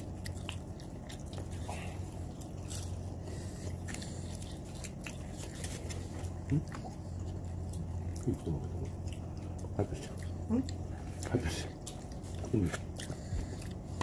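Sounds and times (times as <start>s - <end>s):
crunching fried chicken: 0.0s - 14.0s.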